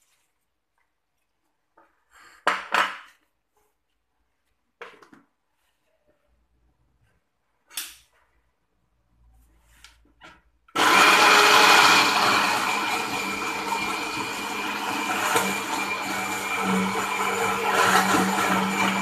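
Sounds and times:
blender grinding: 0:10.7 - 0:19.0.

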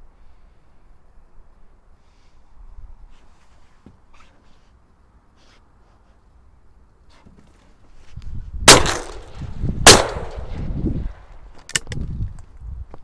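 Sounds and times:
shotgun shots with echo: 0:08.7 - 0:10.6.

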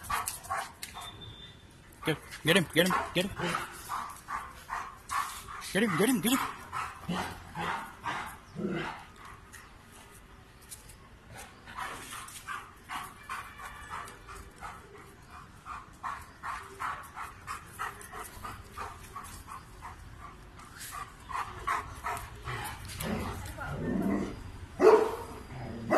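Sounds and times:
dog barking: 0:24.8 - 0:25.9.

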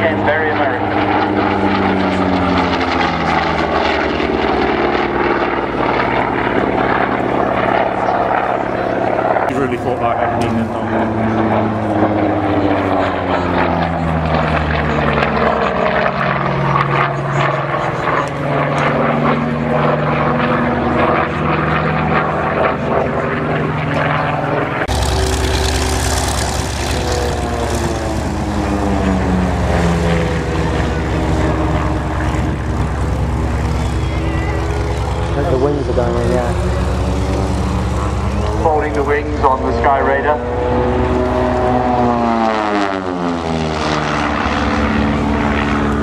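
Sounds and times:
propeller aircraft engine passing: 0:00.0 - 0:46.0
deep rumble: 0:24.7 - 0:42.4.

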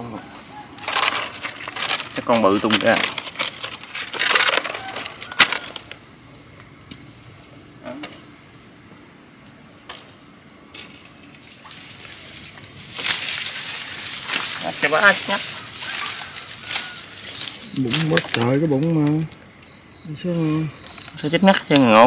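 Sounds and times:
night insects trilling: 0:00.0 - 0:22.0
rustle of dry leaves and brush: 0:00.3 - 0:06.1, 0:11.2 - 0:19.3.

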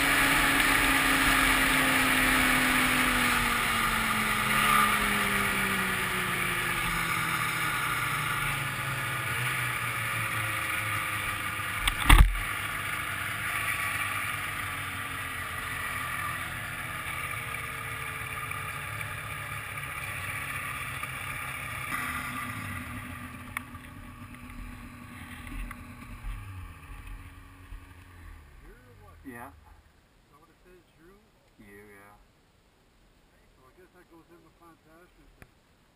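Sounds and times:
snowmobile engine running: 0:00.0 - 0:29.8
sharp thump: 0:11.8 - 0:12.4.

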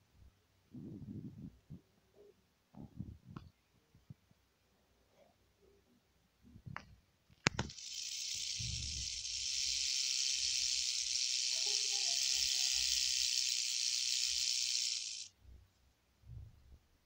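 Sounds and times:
rattlesnake rattle buzzing: 0:07.6 - 0:15.3.

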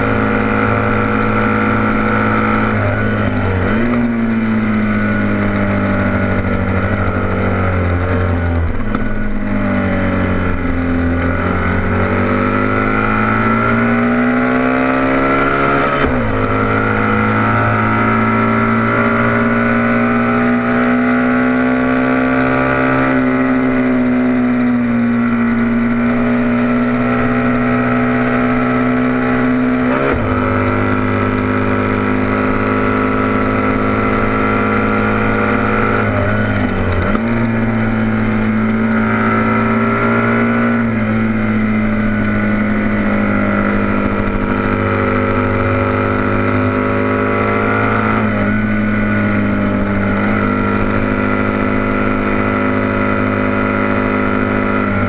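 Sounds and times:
motorcycle engine racing: 0:00.0 - 0:55.0.

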